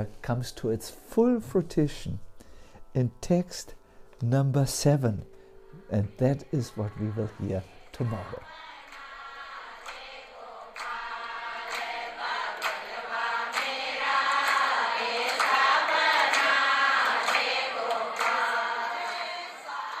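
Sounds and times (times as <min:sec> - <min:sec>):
group chanting a mantra: 0:05.0 - 0:20.0.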